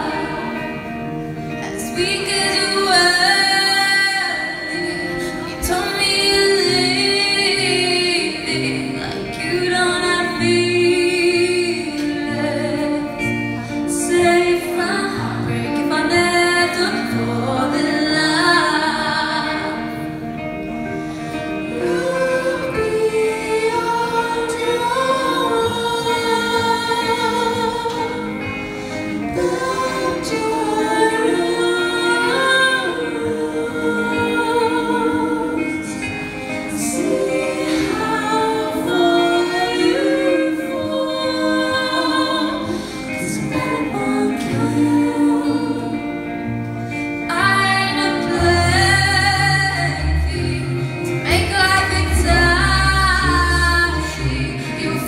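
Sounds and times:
audience singing along: 0:00.0 - 0:55.0
live rock band: 0:00.0 - 0:55.0
woman singing: 0:00.0 - 0:55.0.

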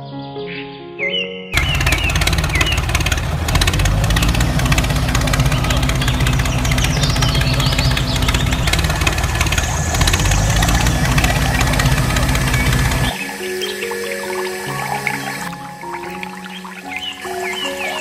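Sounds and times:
tractor engine knocking: 0:01.6 - 0:15.4.

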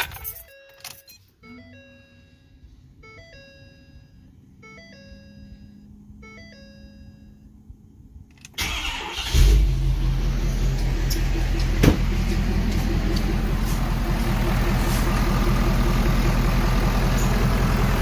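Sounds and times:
diesel engine cranking and starting: 0:08.4 - 0:18.0.

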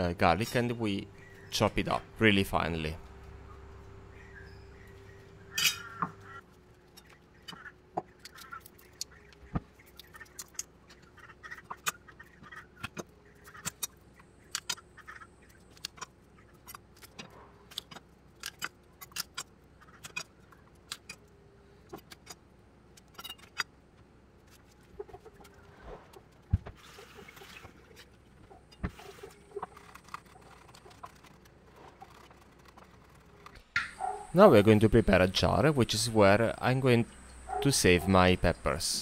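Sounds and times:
faint steady hum: 0:00.0 - 0:39.0
garlic skin crackling: 0:29.1 - 0:34.4.

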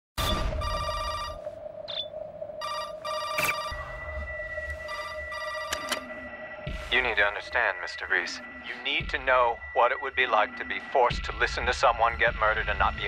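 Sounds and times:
telephone ringing: 0:00.6 - 0:01.4, 0:02.6 - 0:04.0, 0:04.8 - 0:06.3.

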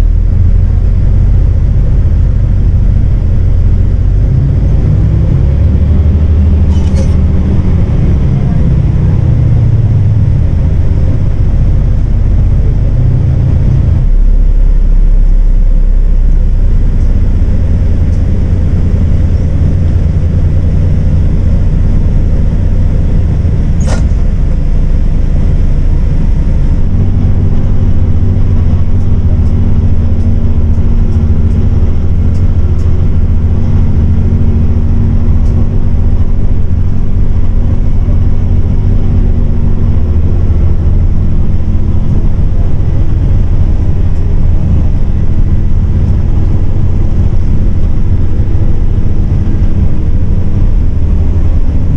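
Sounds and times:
bus diesel engine running: 0:00.0 - 0:51.9
road and tyre noise: 0:00.0 - 0:51.9
sharp click: 0:23.8 - 0:24.2.

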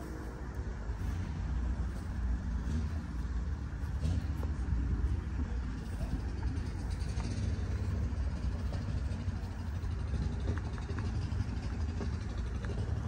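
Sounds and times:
car engine rumbling: 0:00.0 - 0:13.0.

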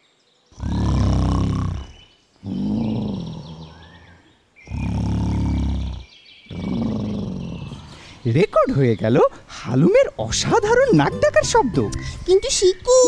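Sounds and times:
comic snoring voice: 0:00.6 - 0:04.1, 0:04.7 - 0:08.0.

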